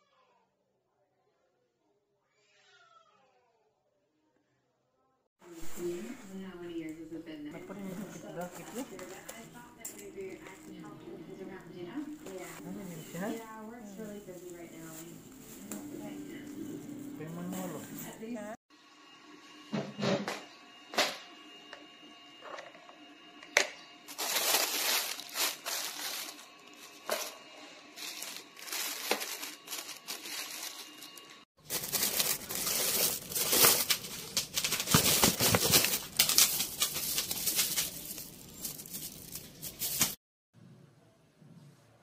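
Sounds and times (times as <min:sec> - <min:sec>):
plastic wrapping crinkling: 0:24.1 - 0:27.4, 0:28.0 - 0:40.2.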